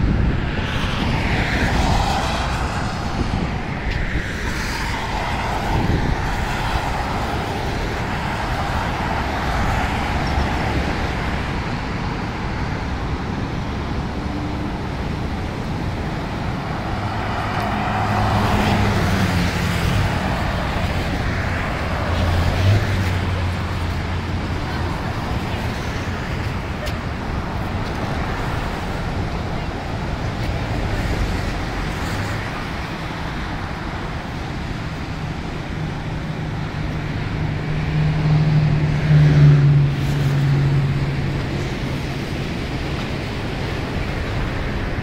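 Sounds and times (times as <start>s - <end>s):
cars driving past: 0.0s - 45.0s
car passing close: 14.4s - 35.2s.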